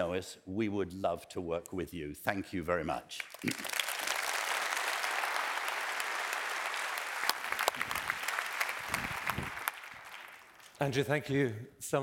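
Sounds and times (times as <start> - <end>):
audience applauding: 3.2 - 10.8
single claps: 3.3 - 10.8.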